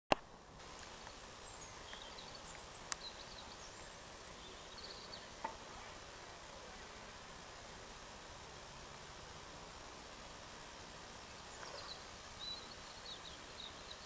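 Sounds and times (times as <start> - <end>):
faint outdoor ambience: 0.1 - 14.0
high thin chirping calls: 0.9 - 5.5, 11.3 - 14.0.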